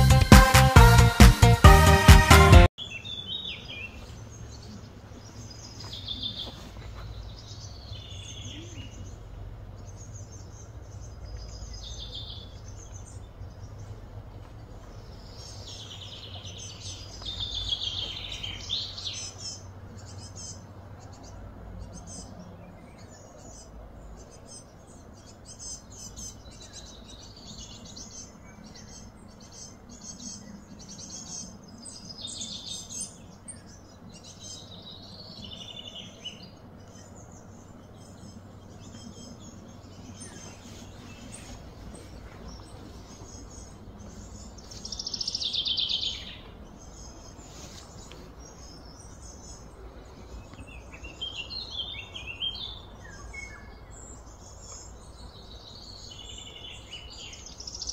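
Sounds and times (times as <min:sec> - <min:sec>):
birds chirping: 0:00.0 - 0:57.9
low steady rumble: 0:07.0 - 0:32.2.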